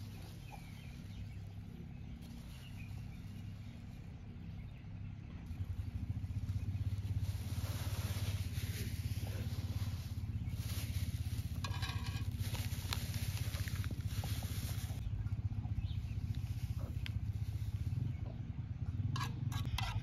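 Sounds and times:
faint bird chirps: 0:00.0 - 0:11.4
low motor engine hum: 0:00.0 - 0:20.0.

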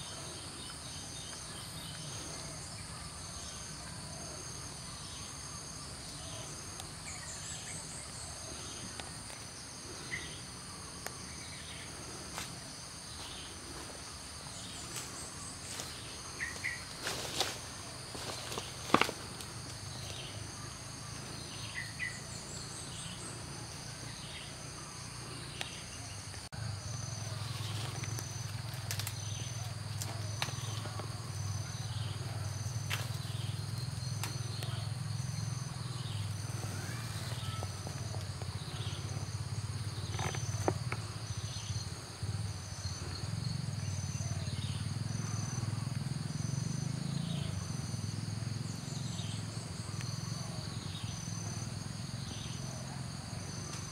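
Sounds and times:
insect buzz: 0:00.0 - 0:53.9
pulsing insect trill: 0:00.0 - 0:53.9
short falling insect calls: 0:06.0 - 0:48.1.

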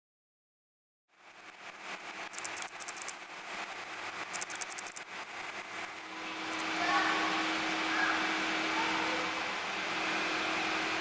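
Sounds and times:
background hiss and hum: 0:01.1 - 0:11.0
high rapid bird chirping: 0:02.0 - 0:05.8.

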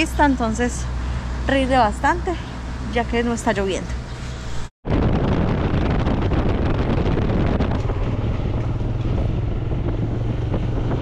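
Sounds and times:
motorcycle engine drone: 0:04.0 - 0:11.0
wind rushing over microphone: 0:04.2 - 0:11.0.

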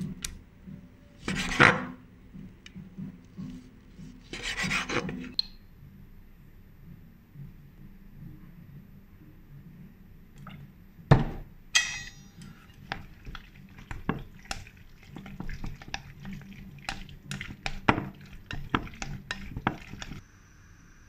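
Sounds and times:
ringing clink: 0:11.8 - 0:12.4.

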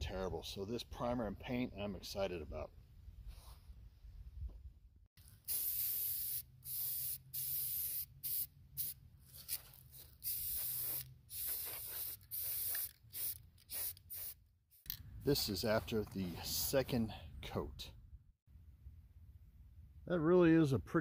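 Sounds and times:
aerosol spray paint hissing: 0:05.4 - 0:14.4.

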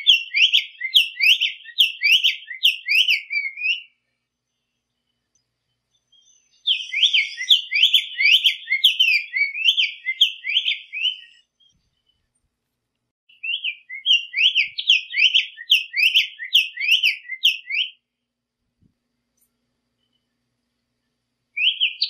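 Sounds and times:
bird singing sweeping notes: 0:00.0 - 0:04.0, 0:05.8 - 0:12.3, 0:13.3 - 0:18.0, 0:21.6 - 0:22.0.

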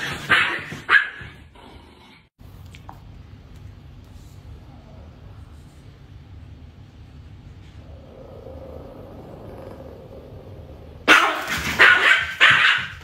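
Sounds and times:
small dog barking: 0:00.2 - 0:01.3, 0:11.1 - 0:13.0
low steady hum: 0:02.4 - 0:12.5.

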